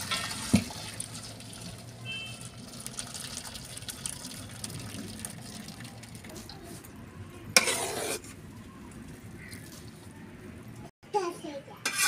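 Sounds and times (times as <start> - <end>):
rice boiling in water: 0.0 - 6.2.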